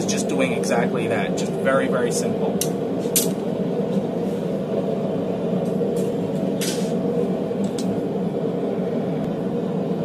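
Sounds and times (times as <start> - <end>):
forge roaring: 0.0 - 10.0.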